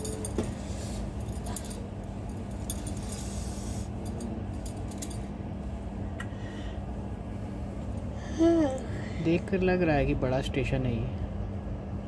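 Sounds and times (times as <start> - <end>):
clinks and rattles: 0.0 - 3.3, 4.0 - 5.3.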